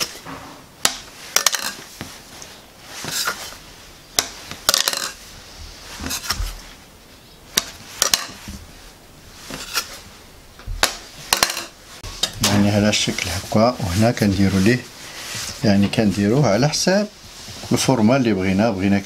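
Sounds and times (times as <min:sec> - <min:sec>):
soft scraping: 0:07.8 - 0:10.2.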